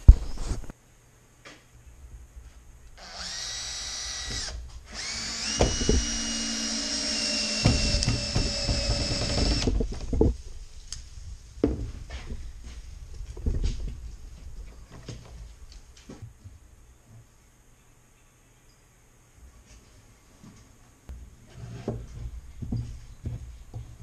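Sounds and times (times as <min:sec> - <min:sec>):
cordless drill motor whining: 0:03.0 - 0:09.7.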